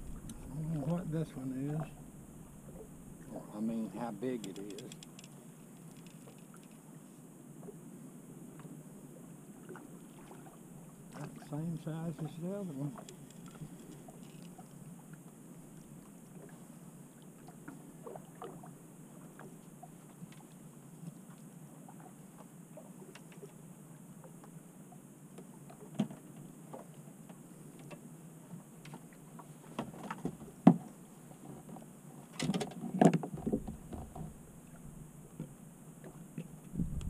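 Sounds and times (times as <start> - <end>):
water sloshing around boat: 0.0 - 7.9, 8.5 - 37.0
knocks and clunks on boat: 25.3 - 37.0.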